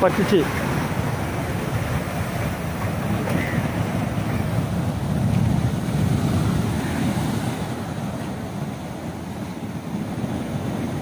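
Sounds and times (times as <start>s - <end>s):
storm waves breaking on seawall: 0.0s - 11.0s.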